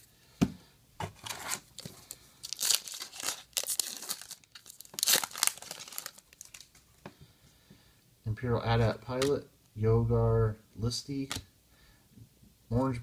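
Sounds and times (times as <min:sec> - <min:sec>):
foil wrapper tearing and crinkling: 0:01.3 - 0:06.8.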